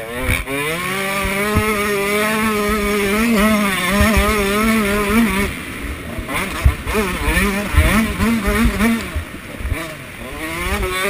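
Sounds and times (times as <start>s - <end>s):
bike thudding over ruts: 0.0s - 11.0s
dirt bike engine revving: 0.0s - 11.0s
wind on microphone: 0.2s - 11.0s.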